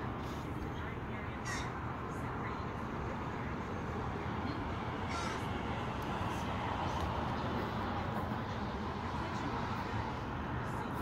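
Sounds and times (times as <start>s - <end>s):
crows cawing: 1.4s - 1.8s, 5.0s - 5.6s.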